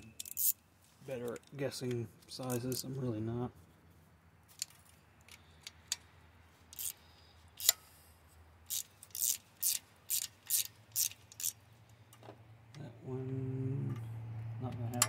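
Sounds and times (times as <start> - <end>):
socket ratchet clicking: 0.2 - 0.6, 6.7 - 7.0, 7.6 - 7.8, 8.7 - 11.6.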